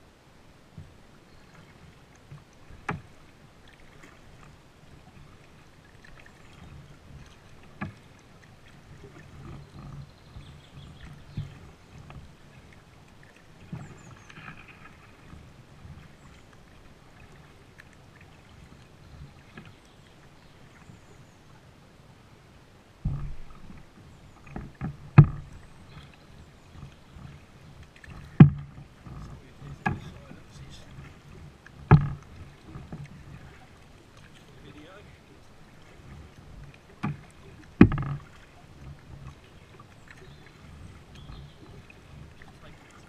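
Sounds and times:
paddle strokes splashing: 0.0 - 43.0
water against plastic hull: 0.7 - 21.7, 23.0 - 43.0
sharp knocks: 28.3 - 28.8, 31.8 - 32.2, 37.8 - 38.2.

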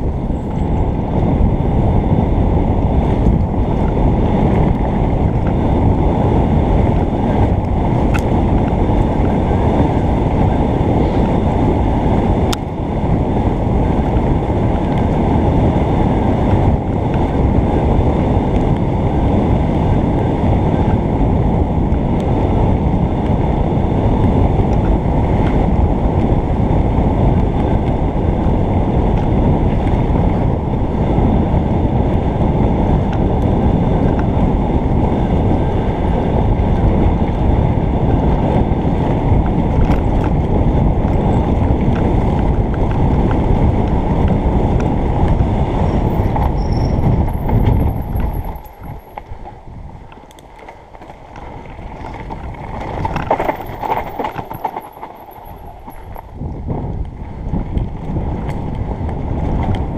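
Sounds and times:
bike clicks and rattles: 0.0 - 59.9
wind buffeting microphone: 0.0 - 59.9
tyre rumble on dirt: 50.6 - 58.3.

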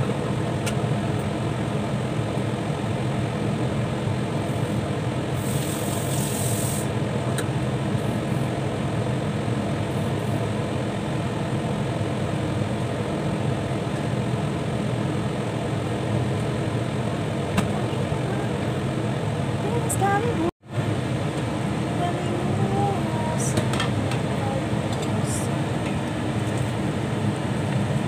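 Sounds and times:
brief higher hiss: 5.4 - 6.9.

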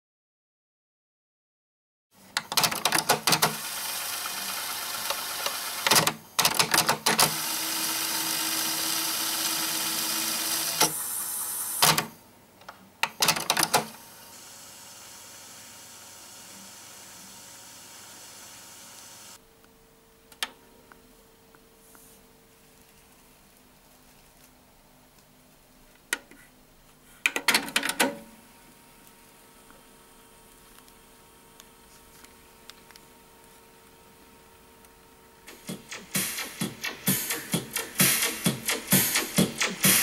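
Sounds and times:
cassette deck motor whirring: 3.2 - 12.2
cassette mechanism clicks: 5.4 - 7.4, 27.3 - 28.3.

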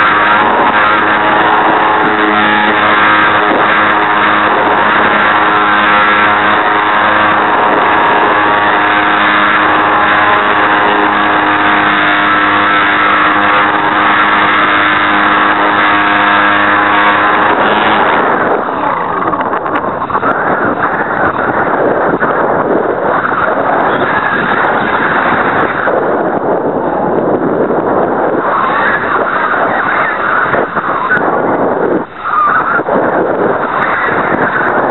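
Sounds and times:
model airplane motor buzzing: 0.0 - 26.6
wind rushing over microphone: 0.0 - 34.9.

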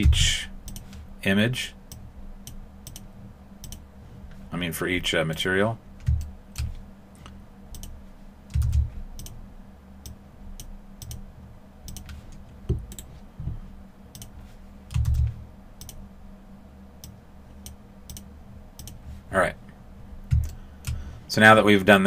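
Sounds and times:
dull low thumps: 0.0 - 0.5
faint steady hum: 0.0 - 22.0
computer mouse clicks: 0.6 - 1.0, 1.9 - 3.8, 6.0 - 9.4, 10.0 - 11.2, 11.9 - 13.1, 14.1 - 16.0, 17.0 - 19.0, 20.3 - 21.0.

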